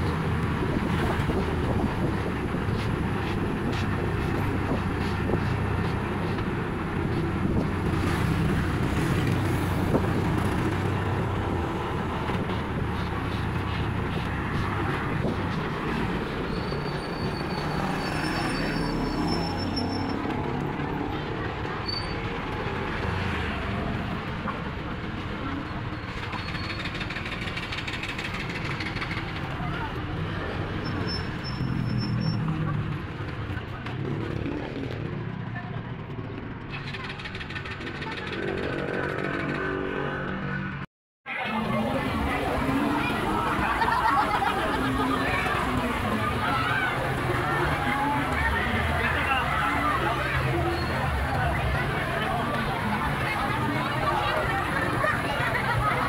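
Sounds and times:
road rumble: 0:00.0 - 0:56.0.

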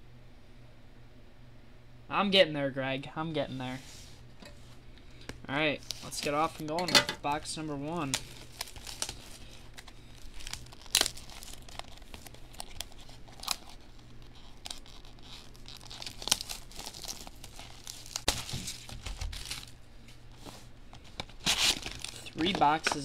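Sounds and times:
plastic shrink wrap tearing: 0:05.8 - 0:19.8, 0:21.0 - 0:23.0
plastic crinkling: 0:05.8 - 0:23.0.

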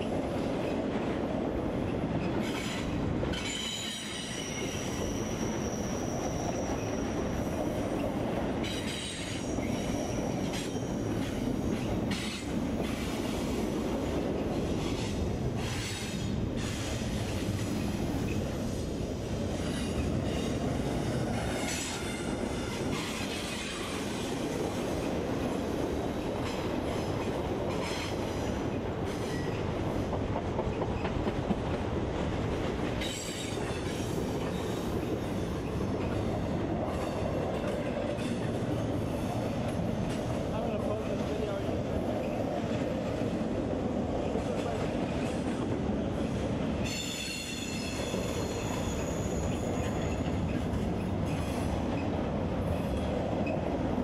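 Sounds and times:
train wheels rumbling on rail: 0:00.0 - 0:54.0
high wheel squeal: 0:03.4 - 0:07.7, 0:46.8 - 0:50.6
wheels clicking over rail joints: 0:26.1 - 0:41.6.

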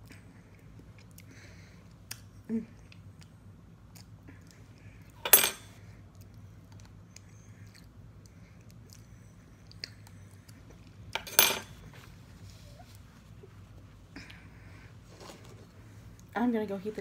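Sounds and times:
soft eating sounds: 0:00.0 - 0:16.4.

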